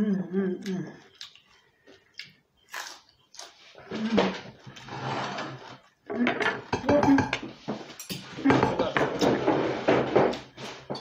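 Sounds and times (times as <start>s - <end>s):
person humming: 0.0s - 1.1s
crunching of crispy food chewed: 1.0s - 3.9s
dishes clicking and knocking: 6.1s - 11.0s.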